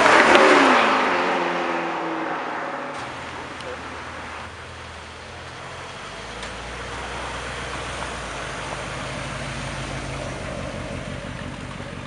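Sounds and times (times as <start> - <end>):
car engine running at low revs: 0.0 - 12.0.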